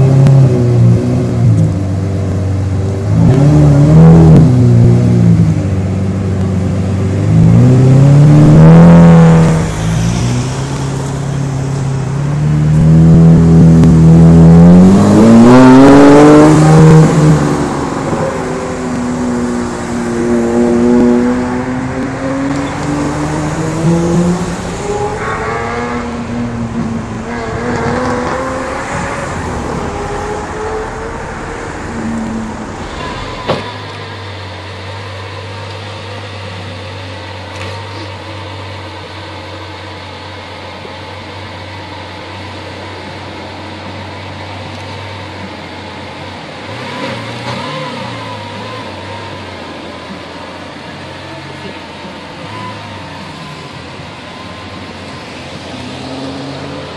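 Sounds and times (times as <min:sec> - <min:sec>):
sports car engine revving: 0:00.0 - 0:33.1.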